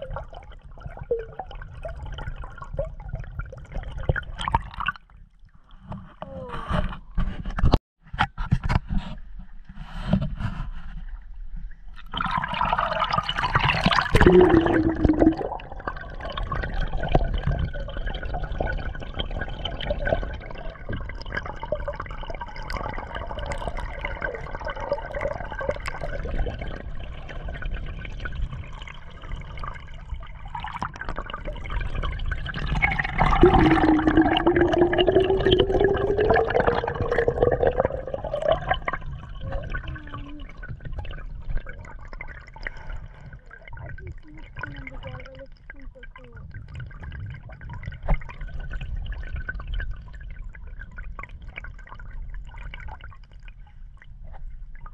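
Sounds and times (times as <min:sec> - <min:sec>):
muffled underwater water rushing: 0:00.0 - 0:54.9.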